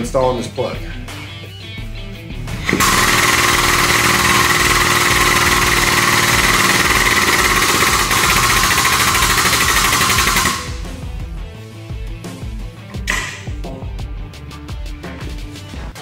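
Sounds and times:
hydraulic foot pump hissing: 0:02.6 - 0:10.7
pump rapid chatter: 0:02.7 - 0:10.9.

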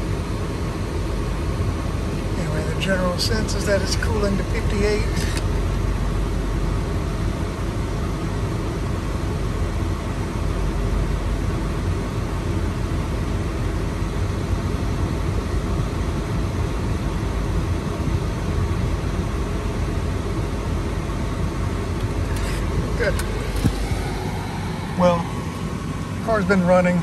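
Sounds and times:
air blowing from vent: 0:00.0 - 0:27.0
car engine idling rumble: 0:00.0 - 0:27.0.

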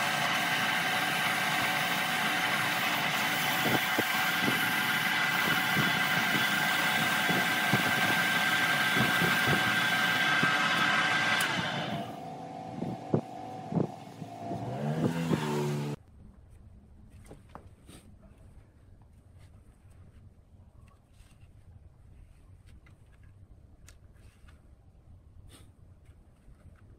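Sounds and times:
sandpaper hissing on wood: 0:00.0 - 0:12.1
lathe motor humming: 0:00.0 - 0:16.0.

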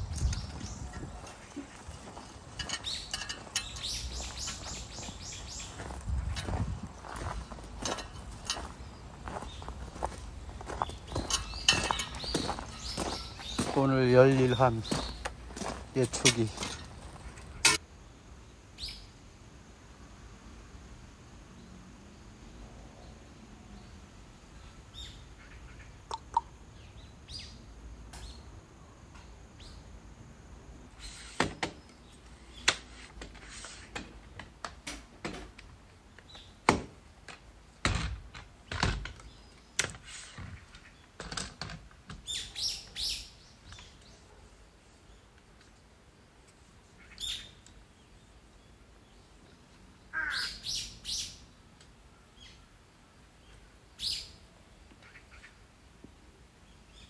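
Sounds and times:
birds chirping: 0:00.0 - 0:17.8, 0:46.4 - 0:51.6
sharp knocks and clatters: 0:36.6 - 0:40.6.

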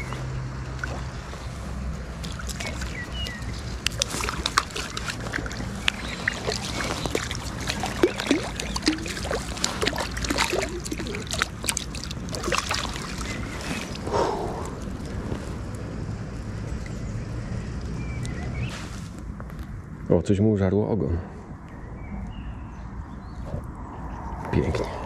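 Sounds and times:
fish splashing in water: 0:00.0 - 0:15.2.

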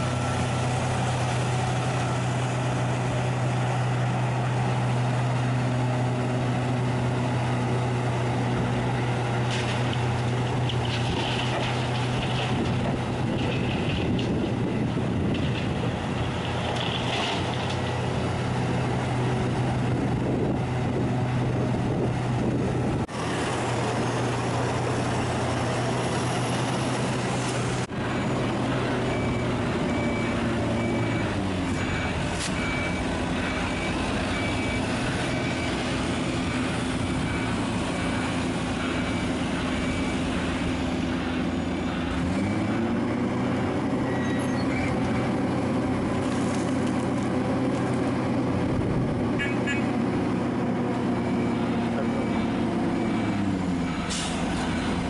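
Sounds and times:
heavy diesel engines running: 0:00.0 - 0:55.0
reversing alarm beeping: 0:28.0 - 0:43.3, 0:51.1 - 0:55.0.

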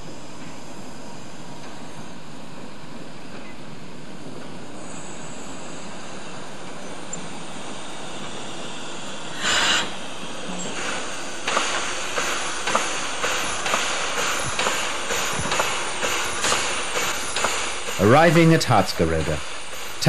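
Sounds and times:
steam locomotive rhythmic beats: 0:05.7 - 0:20.0
steam hiss burst: 0:07.3 - 0:20.0.

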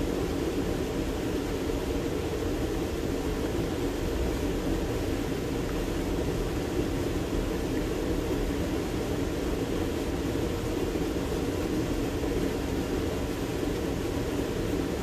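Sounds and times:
creek water rushing: 0:00.0 - 0:15.0.

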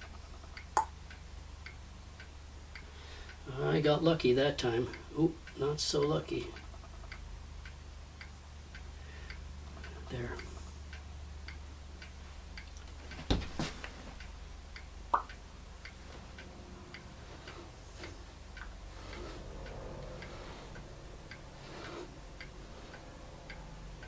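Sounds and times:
faint ticking: 0:00.0 - 0:24.0
low hum: 0:14.2 - 0:24.0.

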